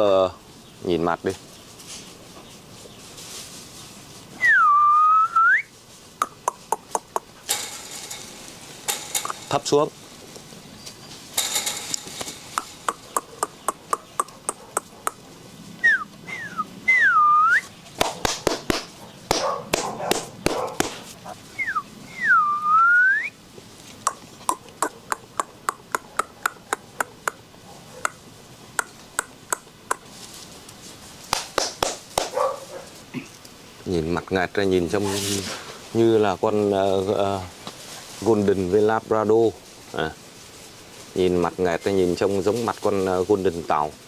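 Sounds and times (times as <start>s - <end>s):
rustling noise bursts: 1.3s - 4.5s, 5.5s - 16.9s, 17.6s - 22.0s, 30.0s - 33.9s, 34.7s - 44.0s
short whistles: 4.4s - 5.7s, 15.8s - 17.7s, 21.6s - 23.4s
rapid tongue clicks: 6.2s - 7.4s, 12.8s - 15.2s, 24.0s - 27.4s, 28.8s - 30.1s.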